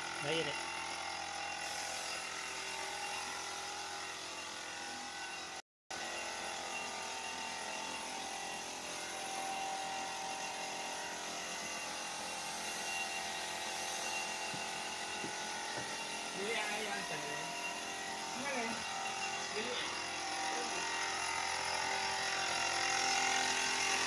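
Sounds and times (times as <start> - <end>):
spray gun hissing: 1.6 - 2.6, 6.8 - 18.9.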